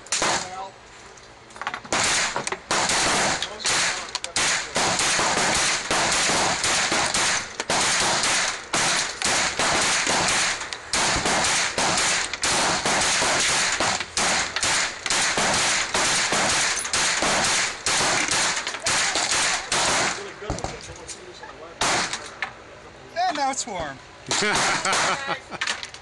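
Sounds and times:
rapid handgun fire: 0:00.1 - 0:00.6, 0:01.9 - 0:20.6, 0:21.8 - 0:22.2, 0:24.3 - 0:25.2.

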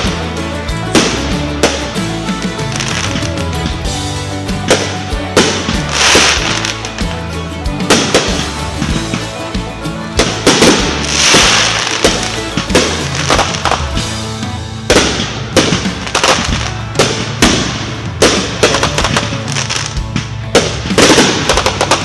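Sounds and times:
crackling hiss of bursting fireworks: 0:00.0 - 0:09.4, 0:10.2 - 0:14.2, 0:14.8 - 0:22.0
music playing: 0:00.0 - 0:22.0
fireworks bangs: 0:04.6 - 0:07.2, 0:07.8 - 0:09.4, 0:10.2 - 0:14.2, 0:14.8 - 0:22.0.

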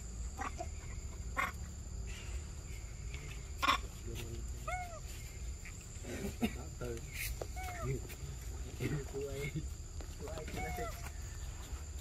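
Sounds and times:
macaques giving sharp calls: 0:00.3 - 0:01.7, 0:03.3 - 0:06.4, 0:07.1 - 0:08.2, 0:10.4 - 0:11.2.

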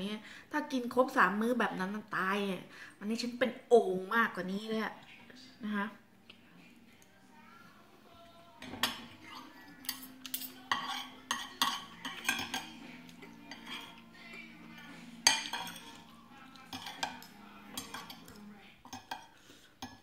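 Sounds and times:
cutlery scraping glass plate: 0:08.6 - 0:14.1, 0:14.8 - 0:20.0.

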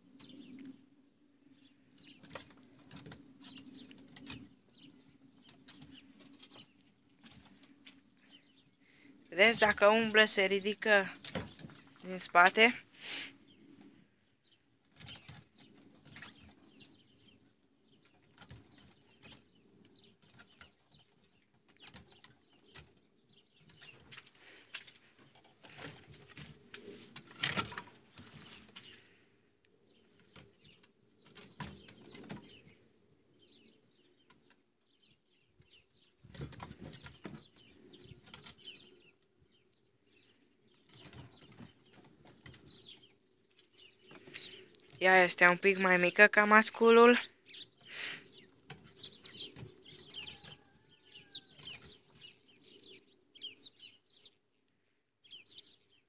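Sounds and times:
rabbits scratching on wooden floor: 0:02.0 - 0:08.2, 0:14.9 - 0:29.2, 0:30.0 - 0:32.8, 0:35.5 - 0:39.7, 0:40.4 - 0:45.0, 0:47.6 - 0:52.8.

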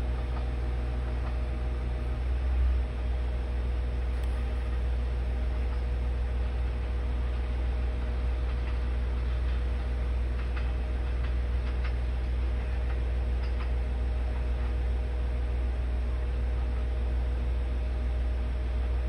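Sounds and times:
diesel railcar engine drone: 0:00.0 - 0:19.0
wheels clicking over rail joints: 0:07.2 - 0:14.8.

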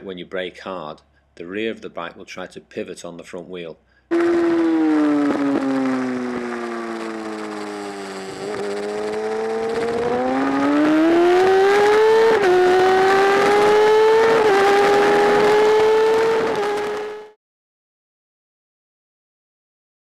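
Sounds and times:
motorcycle engine revving: 0:04.1 - 0:17.4.

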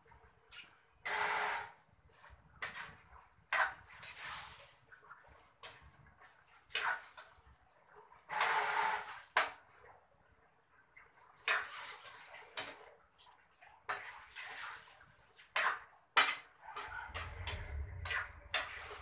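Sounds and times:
metal spatula scraping a wok: 0:01.0 - 0:01.8, 0:08.3 - 0:09.5, 0:15.6 - 0:19.0.

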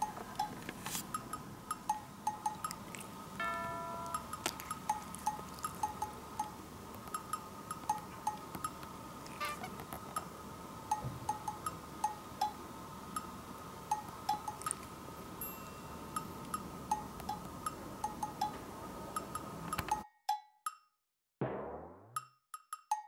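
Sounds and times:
faint room noise: 0:00.0 - 0:20.0
wind chime tinkling: 0:03.4 - 0:06.2, 0:15.4 - 0:16.4.

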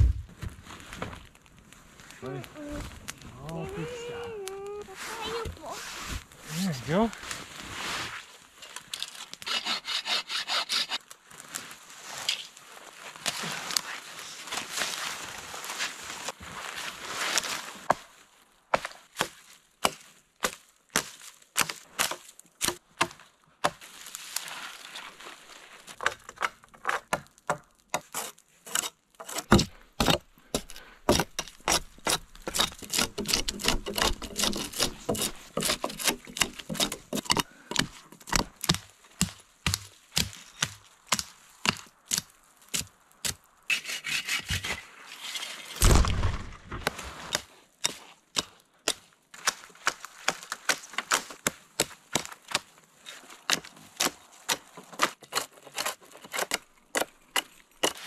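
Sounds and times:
heavy thud: 0:00.0 - 0:00.6, 0:45.8 - 0:46.9
dry branches cracking and snapping: 0:00.0 - 0:04.8, 0:08.4 - 0:09.5, 0:17.4 - 0:28.5, 0:29.2 - 0:43.5, 0:45.7 - 0:58.0.

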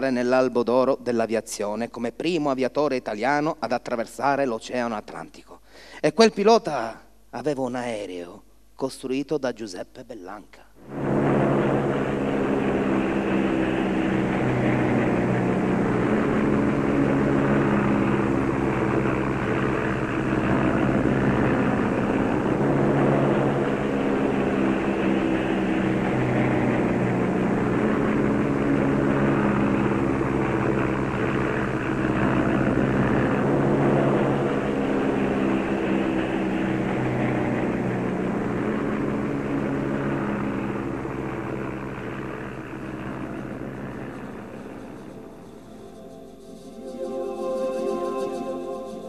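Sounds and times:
propeller aircraft engine droning: 0:00.0 - 0:00.3, 0:10.8 - 0:49.0.

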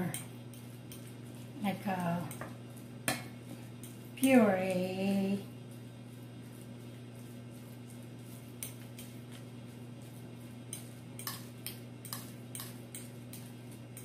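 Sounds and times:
fork clicking on ceramic bowl: 0:00.0 - 0:01.1, 0:08.6 - 0:09.4, 0:10.6 - 0:14.0.

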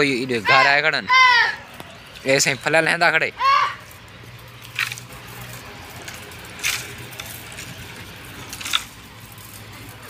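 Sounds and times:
wooden pole knocking branches: 0:06.0 - 0:07.8.

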